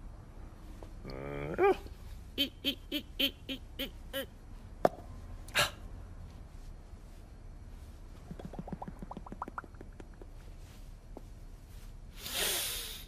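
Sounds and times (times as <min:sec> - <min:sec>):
cartoon character vocal hoots: 0:02.4 - 0:04.3.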